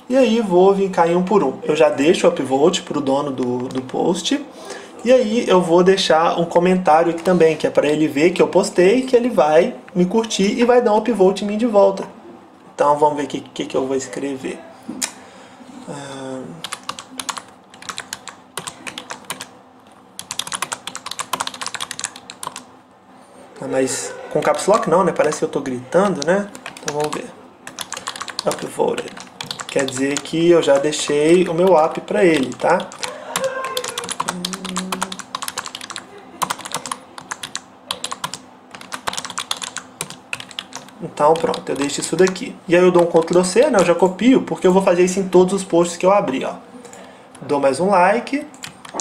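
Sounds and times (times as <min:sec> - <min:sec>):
typing on computer keyboard: 0:03.4 - 0:04.0, 0:16.6 - 0:19.5, 0:20.2 - 0:22.7, 0:24.4 - 0:43.9, 0:48.5 - 0:49.0.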